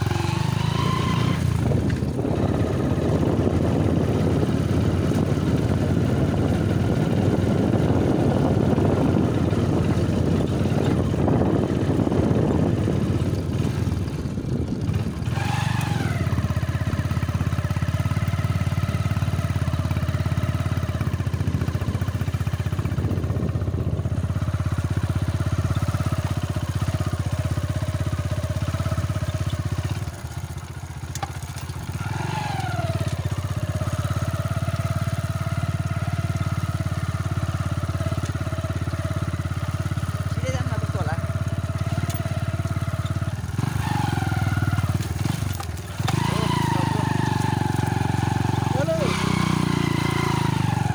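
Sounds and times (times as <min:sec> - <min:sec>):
motorcycle engine running: 0:00.0 - 0:50.9.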